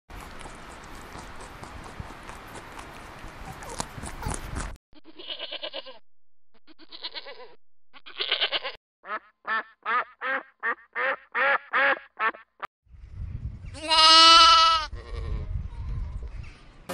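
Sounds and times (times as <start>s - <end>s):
goat bleating: 5.0s - 6.0s, 6.7s - 8.8s, 13.8s - 15.5s
duck quacking: 6.8s - 12.7s.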